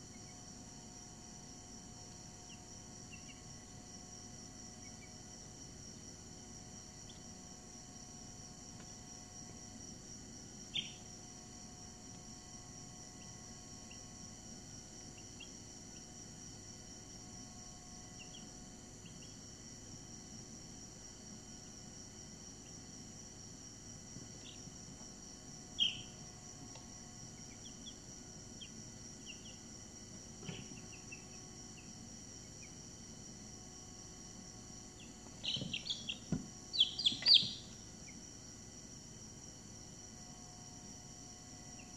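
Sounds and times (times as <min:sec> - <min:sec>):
steady high-pitched whine: 0:00.0 - 0:41.9
chicks peeping: 0:02.5 - 0:03.5, 0:10.7 - 0:11.1, 0:18.2 - 0:19.4, 0:24.4 - 0:24.6, 0:25.8 - 0:26.2, 0:27.4 - 0:28.0, 0:28.6 - 0:29.6, 0:35.0 - 0:38.2.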